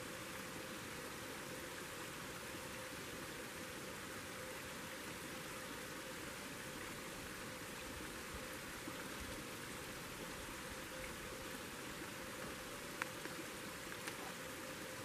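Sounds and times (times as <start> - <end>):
steady rushing hiss: 0.0 - 15.0
faint clicks: 12.4 - 14.3.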